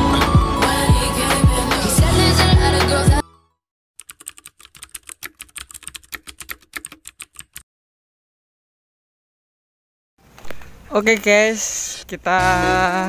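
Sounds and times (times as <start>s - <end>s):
music with a beat: 0.0s - 3.2s
keyboard typing clicks: 4.0s - 7.6s.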